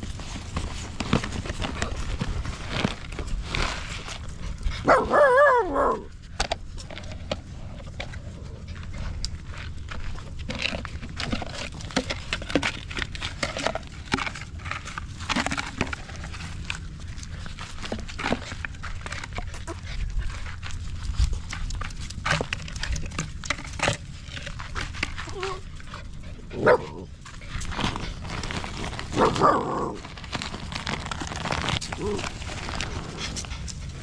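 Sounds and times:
backpack rustling: 0:00.0 - 0:04.3, 0:27.4 - 0:34.0.

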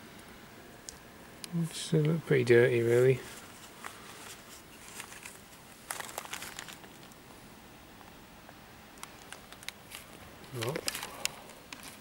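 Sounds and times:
faint rustling and crinkling: 0:01.6 - 0:07.4, 0:09.0 - 0:12.0.

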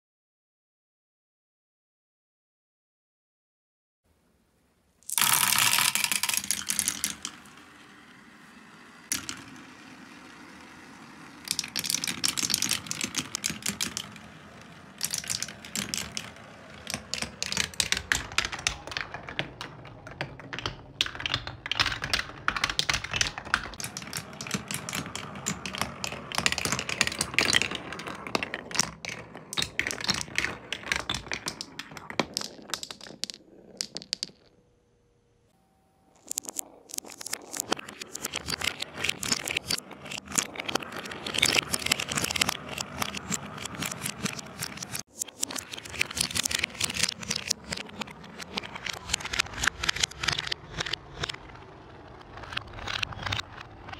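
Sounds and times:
marbles clicking on wooden rails: 0:05.0 - 0:34.6, 0:36.2 - 0:53.9
marbles rattling into a funnel: 0:05.1 - 0:34.5, 0:36.2 - 0:51.3.

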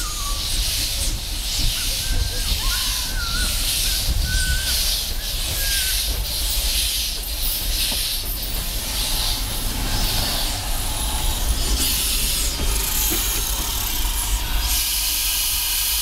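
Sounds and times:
steam locomotive hissing: 0:00.0 - 0:16.0
low rumble: 0:08.6 - 0:14.7.

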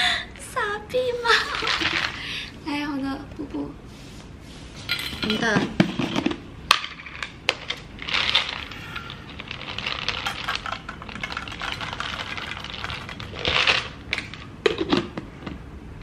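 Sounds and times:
dry kibble pouring into metal bowl: 0:08.0 - 0:14.4.

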